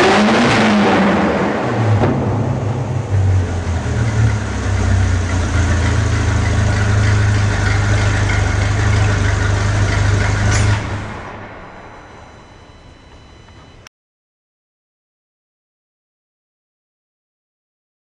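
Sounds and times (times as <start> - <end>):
car engine idling: 1.5 - 13.9.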